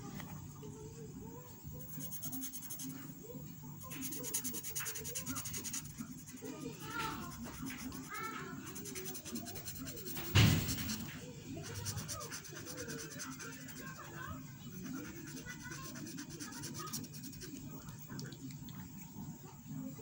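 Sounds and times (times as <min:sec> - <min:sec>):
marker scratching on paper: 0:01.7 - 0:03.2, 0:03.8 - 0:17.6
loud thump: 0:10.2 - 0:10.9.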